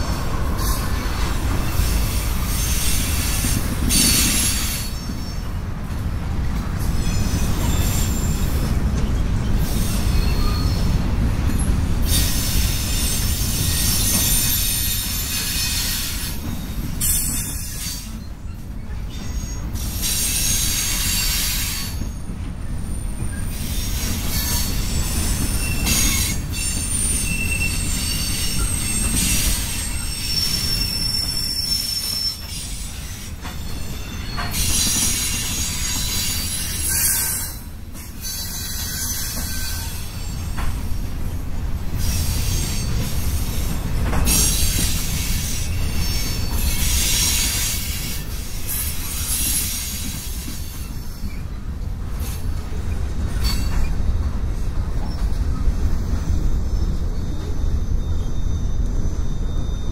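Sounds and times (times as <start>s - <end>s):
train wheels rumbling on rails: 0.0s - 59.9s
high-pitched wheel squeals: 9.6s - 11.0s, 11.6s - 40.8s, 55.0s - 59.9s.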